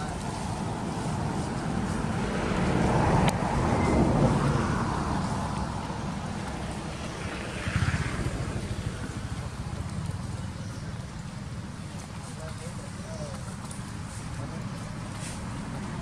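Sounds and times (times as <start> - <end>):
wind buffeting microphone: 0.1 - 12.0.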